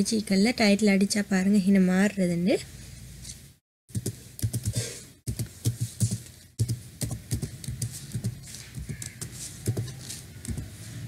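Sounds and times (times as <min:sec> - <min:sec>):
computer keyboard typing: 0:03.9 - 0:10.7.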